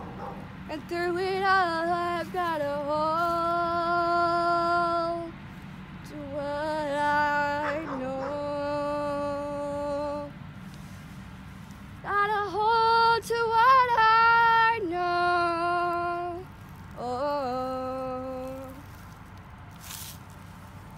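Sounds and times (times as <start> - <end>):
woman singing: 0.7 - 5.3, 6.1 - 10.3, 12.0 - 18.8.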